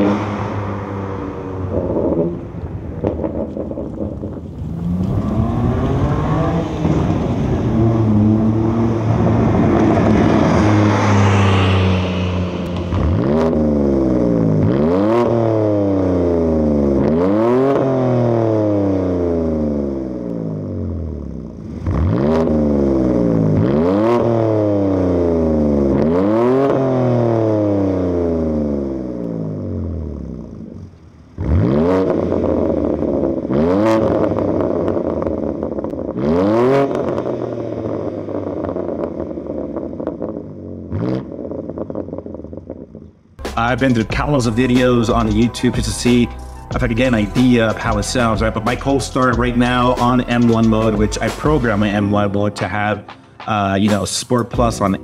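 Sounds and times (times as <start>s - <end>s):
car driving past accelerating: 0.0s - 19.7s
car engine revving: 0.0s - 55.0s.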